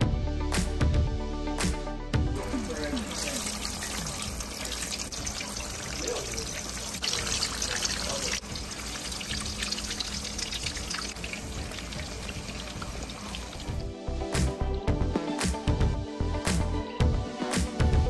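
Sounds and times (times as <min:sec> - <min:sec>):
food sizzling in oil: 0:02.4 - 0:13.9.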